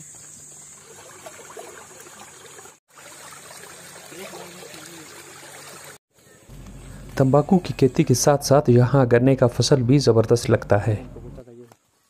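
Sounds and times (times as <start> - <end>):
water flowing in a channel: 0.4 - 6.0.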